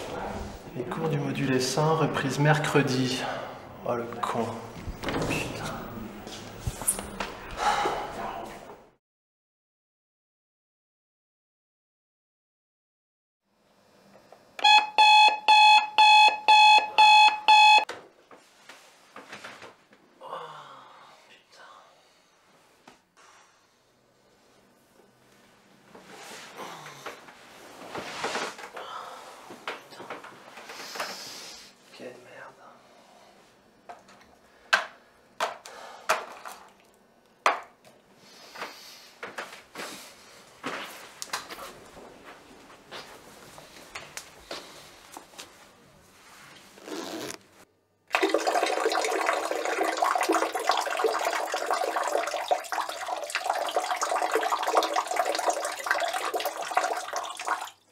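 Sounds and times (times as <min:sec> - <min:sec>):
digital alarm clock beeping: 0:14.6 - 0:17.9.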